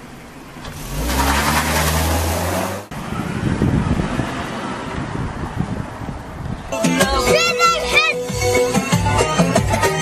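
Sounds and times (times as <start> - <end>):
car driving off rumble: 0.0 - 6.3
car engine revving: 0.6 - 3.0.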